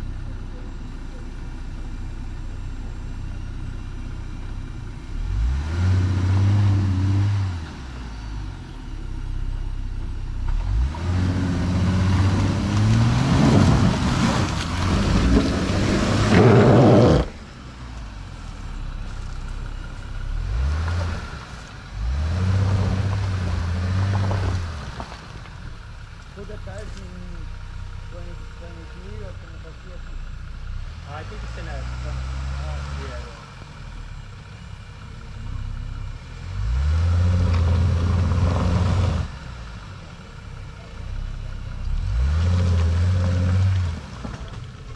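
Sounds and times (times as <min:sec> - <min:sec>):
engine revving: 0:05.1 - 0:08.4, 0:10.4 - 0:18.1, 0:18.7 - 0:25.2, 0:30.8 - 0:44.9
tyres rushing through mud: 0:10.6 - 0:27.4, 0:31.1 - 0:33.6, 0:35.4 - 0:44.9.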